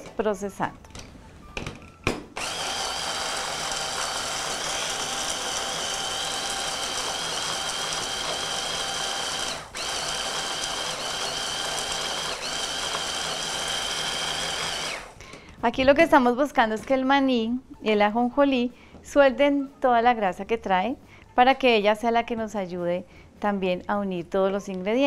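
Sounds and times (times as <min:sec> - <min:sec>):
blender clicks: 0:02.4 - 0:15.1
hand blender motor whine: 0:02.4 - 0:15.2.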